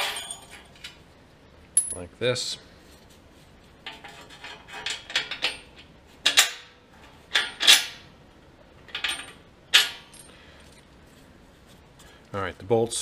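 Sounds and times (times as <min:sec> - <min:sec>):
metal bolts clinking: 0:00.0 - 0:01.0, 0:01.8 - 0:02.1, 0:03.8 - 0:06.7, 0:07.3 - 0:08.0, 0:08.9 - 0:10.3.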